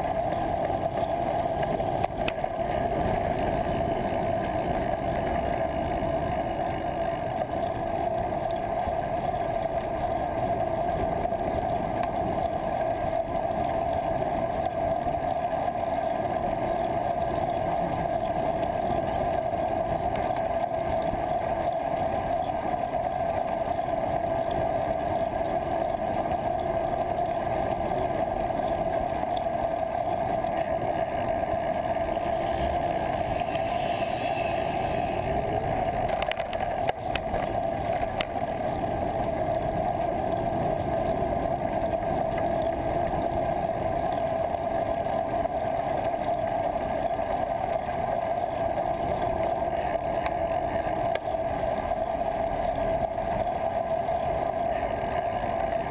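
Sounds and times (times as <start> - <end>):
bicycle road rumble: 0.0 - 55.9
constant hum: 0.0 - 55.9
wind noise: 23.6 - 44.1.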